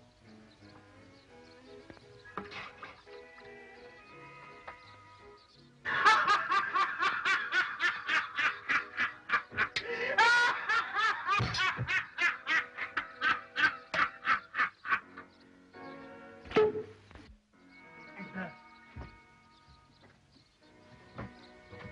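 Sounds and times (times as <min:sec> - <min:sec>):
faint music: 0:00.0 - 0:21.9
men laughing hard: 0:05.8 - 0:15.3.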